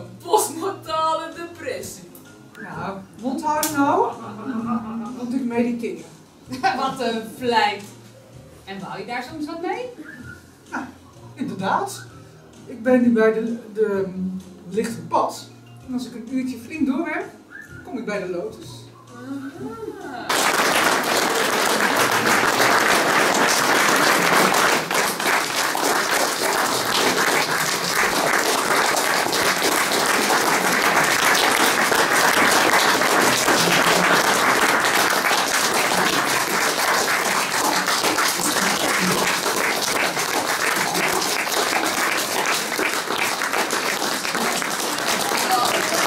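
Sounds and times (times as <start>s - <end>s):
audience applauding: 20.3s - 46.0s.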